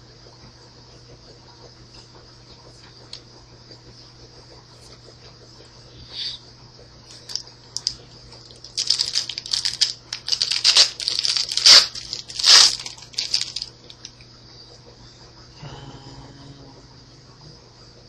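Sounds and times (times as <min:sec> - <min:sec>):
foil wrapper tearing and crinkling: 0:07.1 - 0:14.1.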